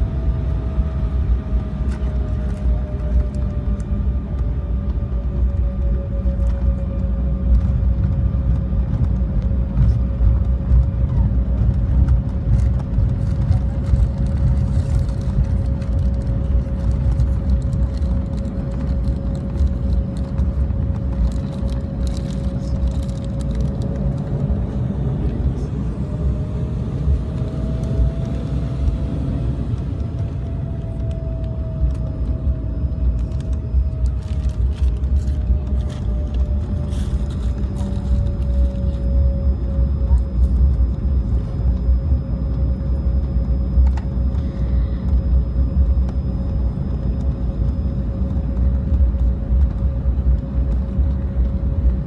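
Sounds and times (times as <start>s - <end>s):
engine whine: 0.0s - 52.0s
jet engine rumble: 0.0s - 52.0s.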